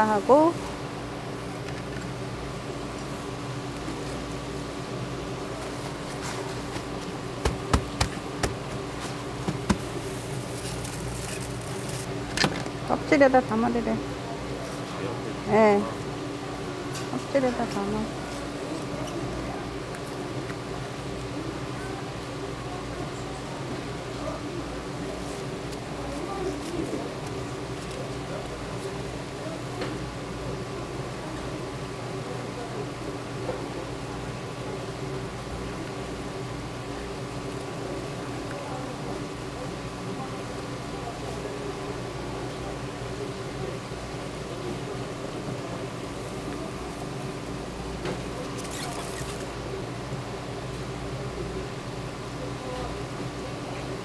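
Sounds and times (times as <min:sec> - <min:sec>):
low machine hum: 0:00.0 - 0:54.0.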